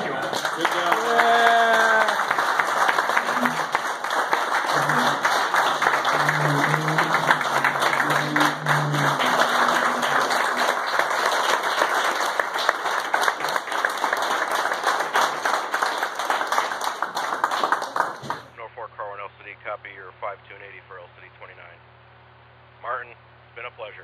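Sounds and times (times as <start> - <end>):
people clapping: 0.0 - 18.6.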